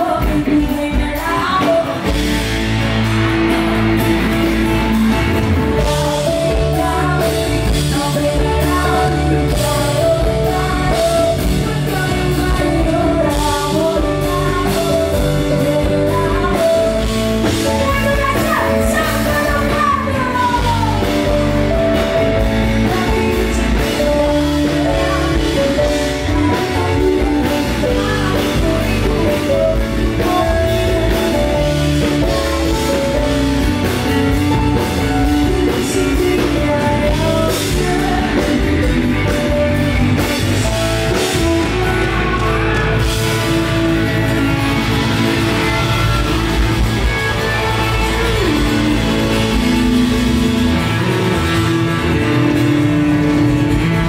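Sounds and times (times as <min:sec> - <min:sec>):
woman singing into a microphone: 0:00.0 - 0:02.6, 0:05.7 - 0:44.1
drum kit: 0:00.0 - 0:54.0
electric guitar: 0:00.0 - 0:54.0.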